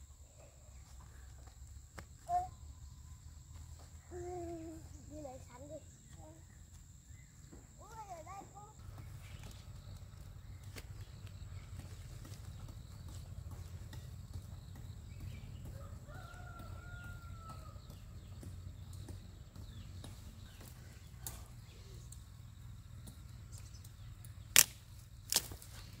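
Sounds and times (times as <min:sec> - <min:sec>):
distant rooster crowing: 0:15.1 - 0:19.8.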